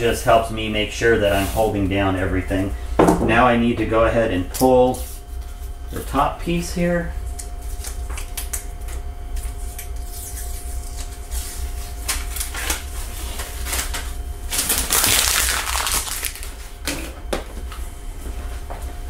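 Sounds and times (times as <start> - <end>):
steady low hum: 0.0 - 19.0
tape tearing rip: 13.6 - 16.6.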